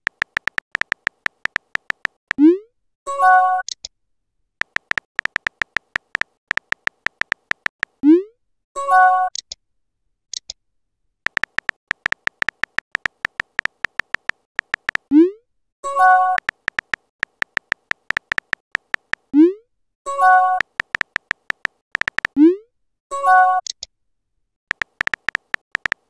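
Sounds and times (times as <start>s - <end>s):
phone keyboard taps: 0.0s - 2.2s, 4.6s - 8.0s, 11.3s - 15.1s, 16.4s - 19.3s, 20.6s - 22.4s, 24.7s - 26.0s.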